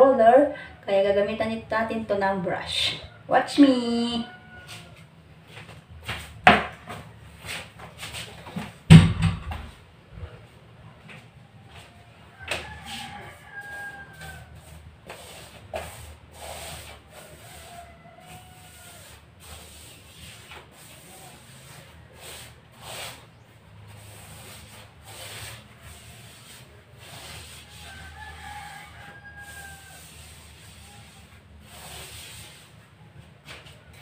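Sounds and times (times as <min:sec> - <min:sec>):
paintbrush swishing against wall: 0:07.0 - 0:08.5, 0:11.8 - 0:34.0.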